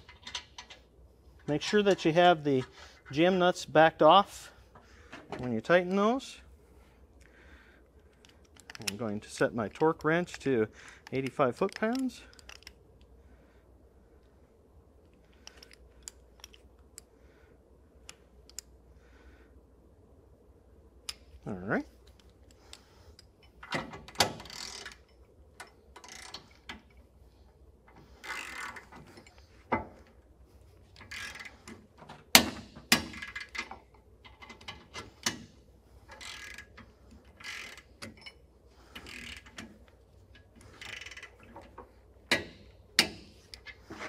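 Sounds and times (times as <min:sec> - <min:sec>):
torque wrench clicking over: 0:24.2 - 0:26.9, 0:28.2 - 0:29.4, 0:31.0 - 0:31.6, 0:36.1 - 0:39.9, 0:40.6 - 0:41.7
torque wrench ratcheting: 0:24.4 - 0:25.1, 0:26.0 - 0:26.6, 0:28.2 - 0:29.0, 0:31.0 - 0:31.6, 0:36.1 - 0:38.2, 0:38.9 - 0:39.8, 0:40.6 - 0:41.5.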